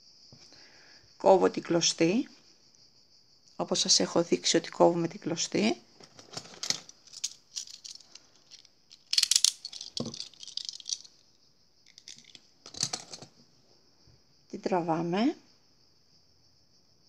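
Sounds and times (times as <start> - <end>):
cicadas hissing: 0.0 - 4.6, 6.8 - 12.6.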